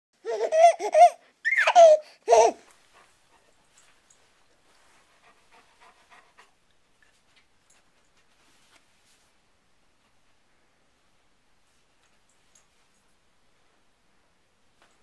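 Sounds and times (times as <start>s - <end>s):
baby laughing and squealing: 0.2s - 2.7s
faint soft ticks: 11.9s - 13.2s.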